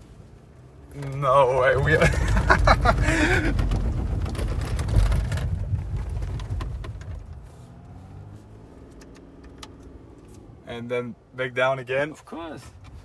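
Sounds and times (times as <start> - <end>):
engine rumble inside cabin: 0.0 - 10.5
wheels knocking on steps: 2.0 - 7.3.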